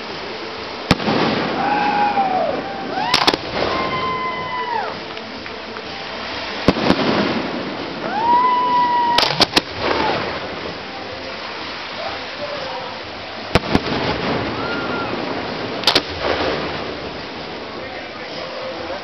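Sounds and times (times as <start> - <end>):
firework shells bursting: 0.9 - 1.7, 3.0 - 3.8, 9.0 - 10.7, 13.5 - 17.4.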